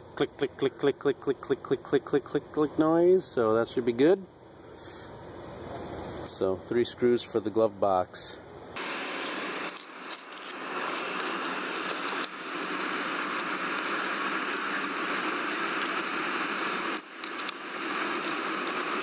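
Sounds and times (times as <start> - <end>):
heater blower air rushing: 8.8 - 19.0.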